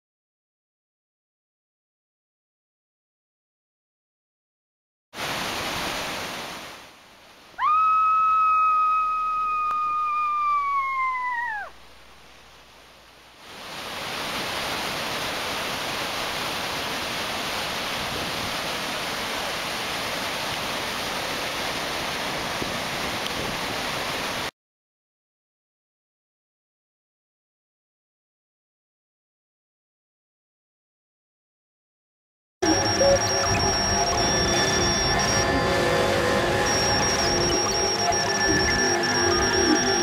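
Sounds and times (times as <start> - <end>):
waterfall roaring: 5.2 - 7.6, 13.4 - 24.5, 32.6 - 40.0
high whistle-like tone: 32.6 - 40.0.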